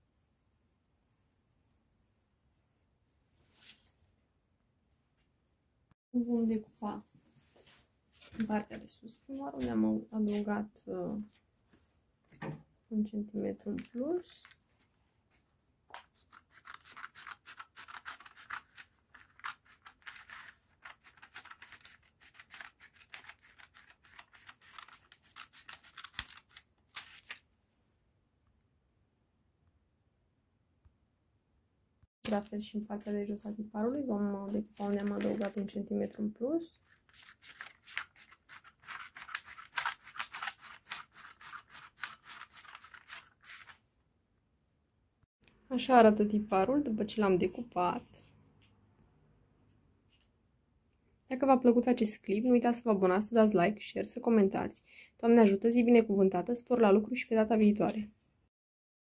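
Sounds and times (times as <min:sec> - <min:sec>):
scissors snipping paper: 0:16.0 - 0:27.4, 0:36.9 - 0:43.8.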